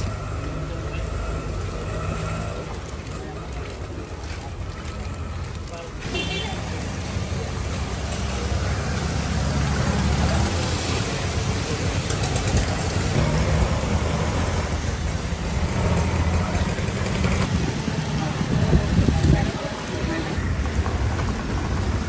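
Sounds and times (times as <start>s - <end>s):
road noise: 0.0s - 22.0s
vehicle engines running: 0.0s - 22.0s.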